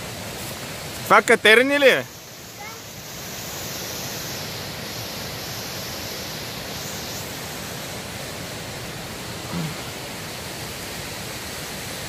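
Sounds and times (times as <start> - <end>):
waterfall roaring: 0.0 - 12.0.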